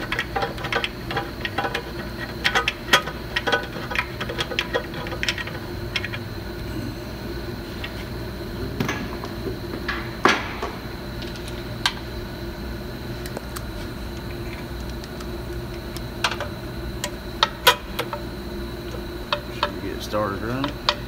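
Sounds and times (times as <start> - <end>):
hand tools clicking and clanking: 0.0 - 6.3
steady background hum: 0.0 - 21.0.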